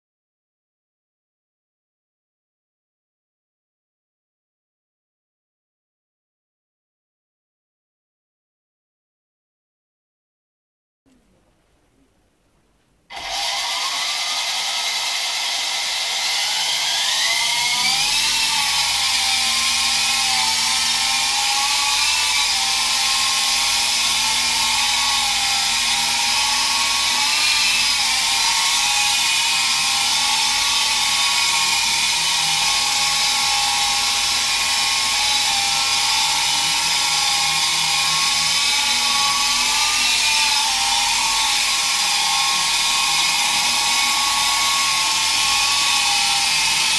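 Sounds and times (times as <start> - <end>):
toy helicopter motor whine: 13.1 - 46.9.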